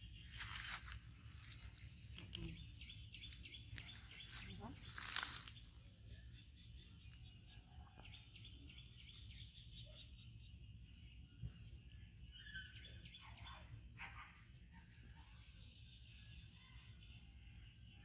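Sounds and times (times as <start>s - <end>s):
faint bird chirps: 0.0s - 18.0s.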